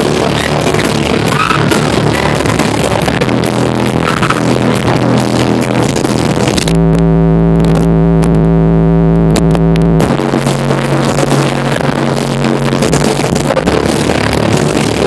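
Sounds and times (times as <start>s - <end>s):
distorted electronic music: 0.0s - 15.0s
held synth chord: 6.7s - 10.7s.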